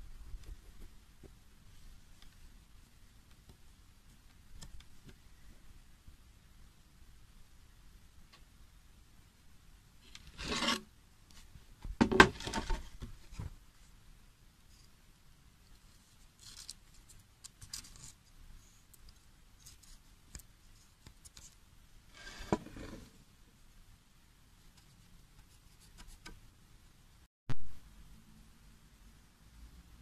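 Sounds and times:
faint scratches: 10.0s - 10.9s, 15.7s - 23.2s
handling rubbing and scraping: 10.1s - 10.8s, 21.2s - 23.2s.

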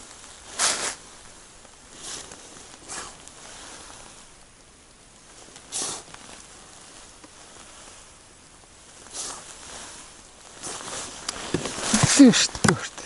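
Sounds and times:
steady low hiss: 0.0s - 13.0s
jacket sleeve swishing: 0.3s - 1.3s, 1.9s - 4.3s, 5.4s - 8.1s, 8.9s - 13.0s.

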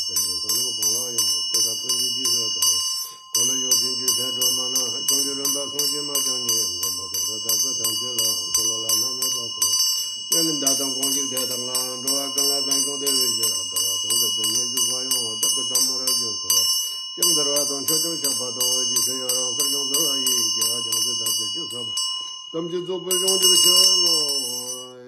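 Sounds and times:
man chanting low: 0.0s - 2.8s, 3.4s - 9.6s, 10.3s - 16.6s
hand bell ringing: 0.0s - 25.0s.

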